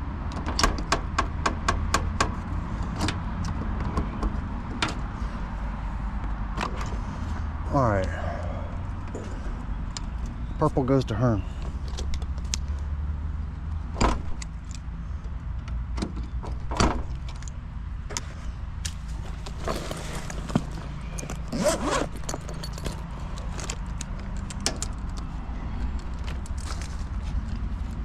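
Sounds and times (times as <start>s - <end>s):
metallic clinks and rattles: 19.8s - 27.6s.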